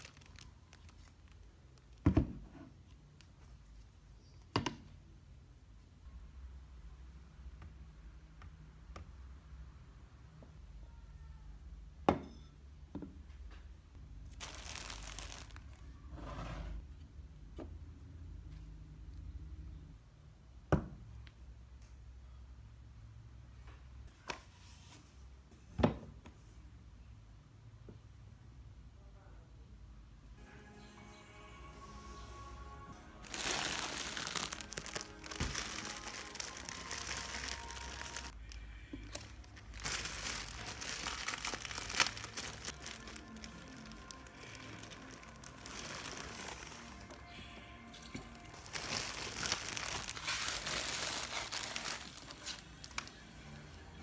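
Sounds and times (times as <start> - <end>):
crinkly rustling: 0.0 - 2.0, 14.3 - 16.0, 33.2 - 47.3, 47.9 - 53.2
background music: 30.3 - 54.0.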